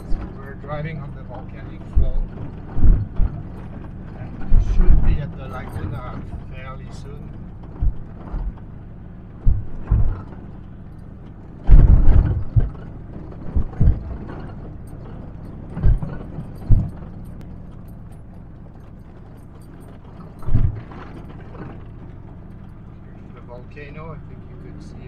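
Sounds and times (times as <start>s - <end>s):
engine and tyres droning: 0.0s - 25.0s
truck thumping over rocks: 1.7s - 8.7s, 9.3s - 10.7s, 11.6s - 17.7s, 19.6s - 22.8s.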